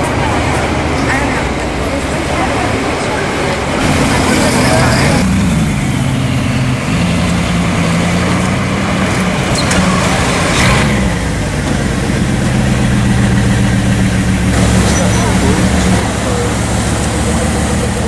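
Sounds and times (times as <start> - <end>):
car engine running at low revs: 3.8 - 18.0.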